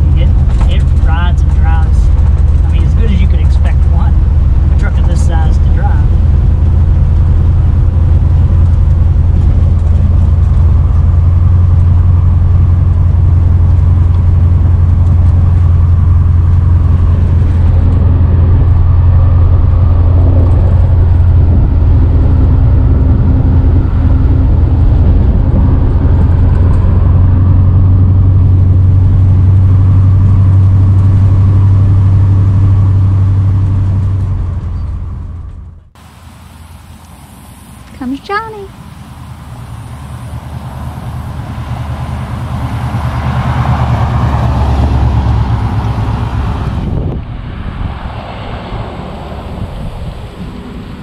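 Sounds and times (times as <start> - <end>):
truck engine droning: 0.0 - 51.0.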